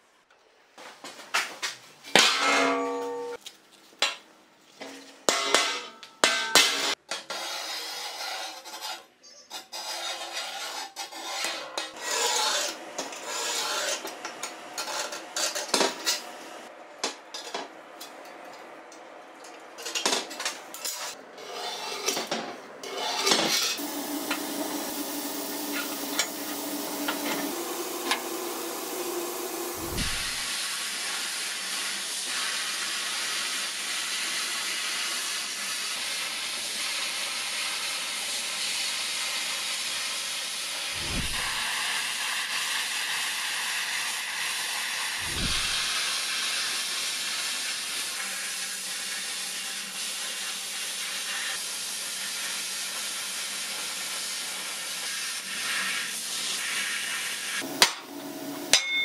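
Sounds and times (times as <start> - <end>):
scriber scratching steel plate: 6.7 - 14.2.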